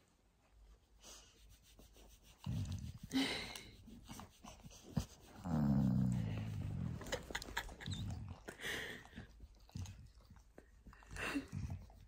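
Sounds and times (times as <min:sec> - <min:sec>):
dog groaning: 0:05.4 - 0:08.5.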